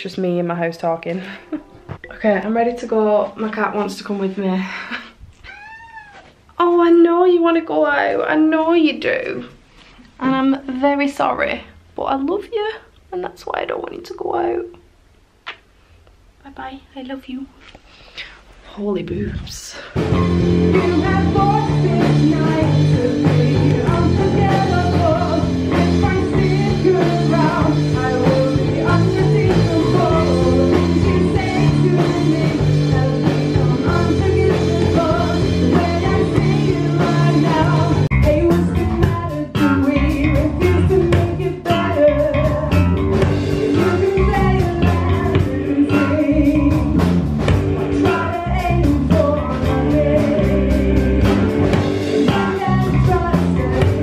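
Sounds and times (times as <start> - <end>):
woman singing: 19.2 - 47.1, 47.7 - 54.0
bass guitar: 19.2 - 54.0
drums and cymbals: 19.8 - 54.0
electric guitar: 20.0 - 54.0.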